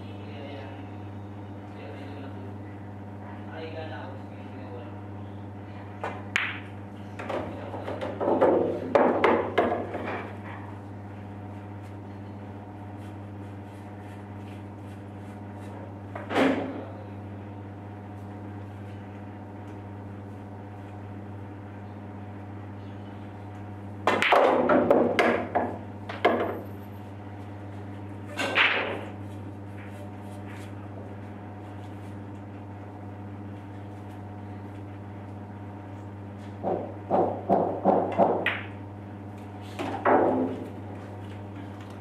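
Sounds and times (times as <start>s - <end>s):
steady low hum: 0.0s - 42.0s
pool balls clacking: 6.1s - 10.4s, 24.0s - 26.7s, 28.4s - 29.2s, 36.6s - 38.8s, 39.8s - 41.8s.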